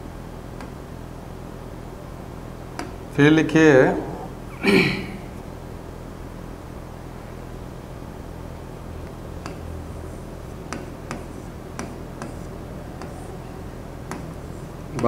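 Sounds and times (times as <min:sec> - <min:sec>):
low room hum: 0:00.0 - 0:15.0
sharp taps: 0:09.0 - 0:09.6, 0:10.7 - 0:13.2, 0:14.1 - 0:14.4.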